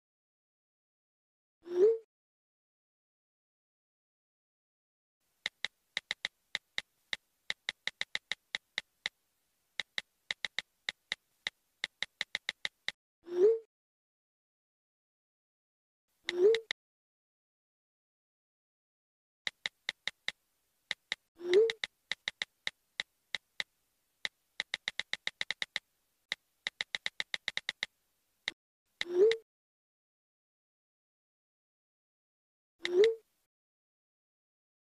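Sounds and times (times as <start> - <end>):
phone keyboard clicks: 5.4 - 9.2, 9.8 - 13.0, 19.5 - 27.9.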